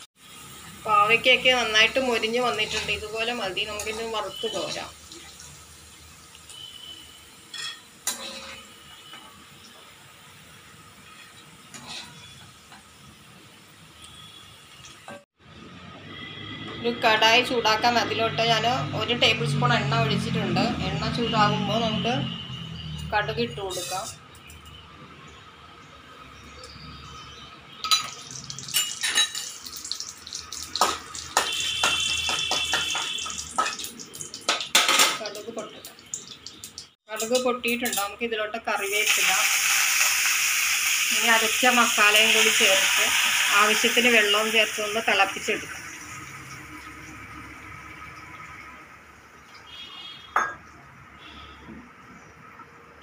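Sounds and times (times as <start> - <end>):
food sizzling in hot oil: 0.0 - 15.3, 22.5 - 24.3, 27.8 - 50.5
metal spoon clinking on pan: 7.5 - 8.6, 27.8 - 29.7, 36.7 - 38.2
spoon stirring in metal pan: 7.6 - 9.1, 11.1 - 12.4, 23.7 - 24.2.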